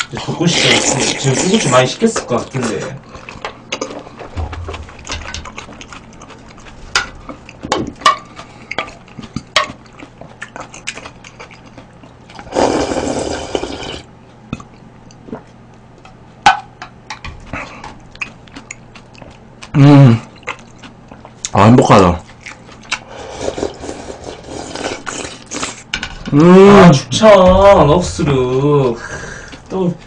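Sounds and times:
loud slurp: 0.4s - 1.9s, 12.4s - 14.1s, 23.0s - 25.8s.

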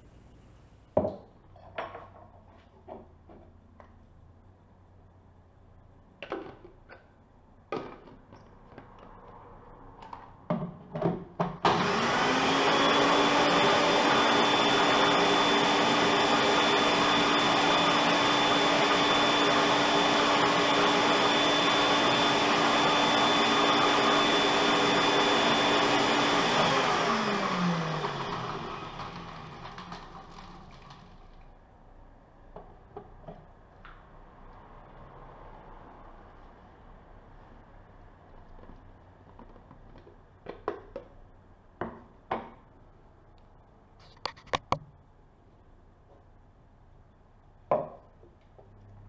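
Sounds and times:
blender motor grinding bread: 11.6s - 31.2s.

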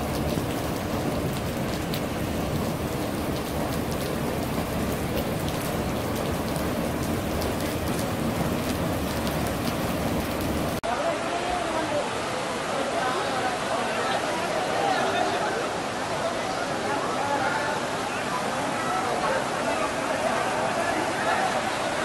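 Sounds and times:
water rushing: 0.0s - 22.0s.

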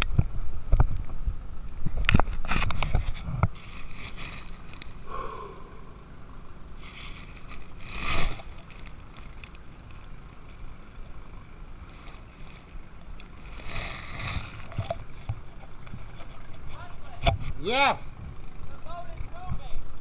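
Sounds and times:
pump droning: 3.5s - 16.7s.

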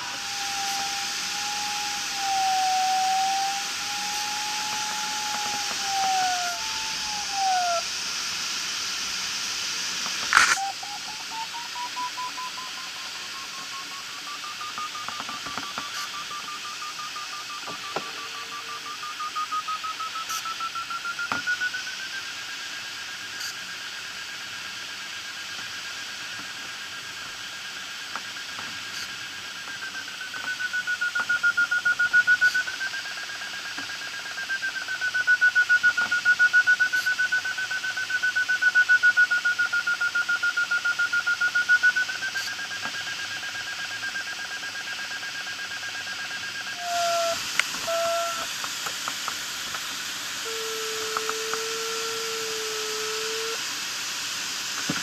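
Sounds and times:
airflow hiss in cockpit: 0.0s - 30.2s, 46.3s - 55.0s
variometer tone and beeps: 10.4s - 22.0s.

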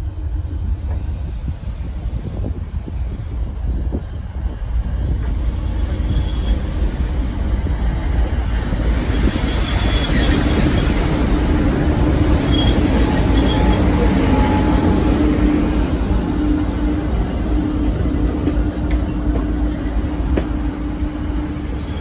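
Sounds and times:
train wheels rumbling on rail: 0.0s - 22.0s
high wheel squeals: 5.9s - 6.8s, 9.2s - 11.2s, 12.3s - 15.1s, 21.2s - 22.0s.

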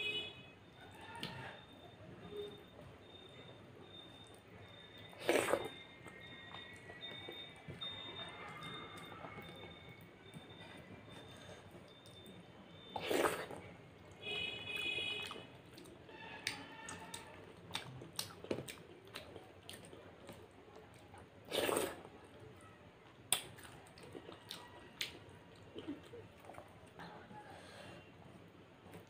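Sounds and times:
wet chewing and lip smacks: 11.1s - 13.6s, 15.2s - 22.0s, 23.3s - 27.0s.

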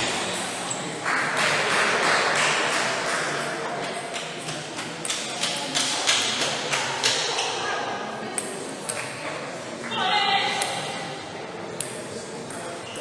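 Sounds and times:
hall background noise: 0.0s - 3.0s.

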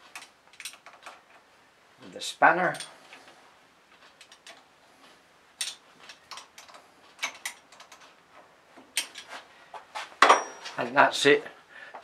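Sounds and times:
spanner clicking on metal nuts: 0.2s - 1.3s.

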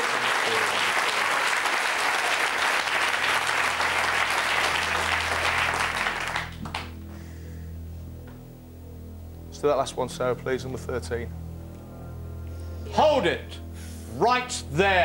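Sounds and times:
audience applauding: 0.0s - 7.0s
low music bed: 2.4s - 15.0s.

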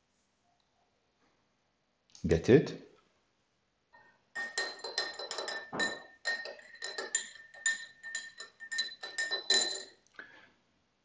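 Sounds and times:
hard objects clinking and clattering: 4.4s - 10.0s.

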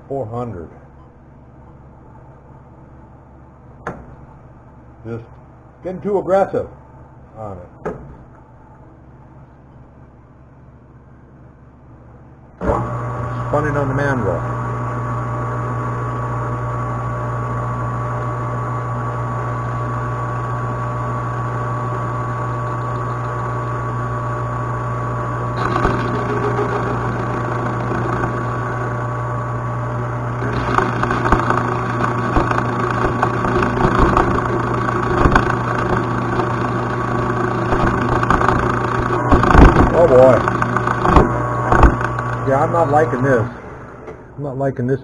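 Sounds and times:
metal lathe running: 12.6s - 44.0s.

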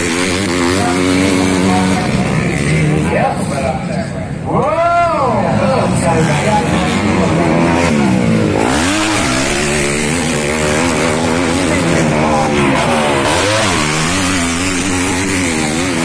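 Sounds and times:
dirt bike engines revving: 0.0s - 16.0s.

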